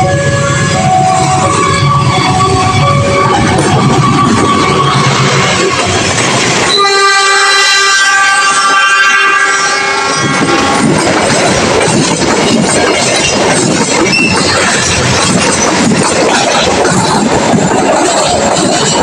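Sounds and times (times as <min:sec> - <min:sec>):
locomotive horn blaring: 0:00.0 - 0:06.0, 0:06.6 - 0:11.0
train wheels clattering on rails: 0:00.0 - 0:07.0, 0:09.7 - 0:19.0.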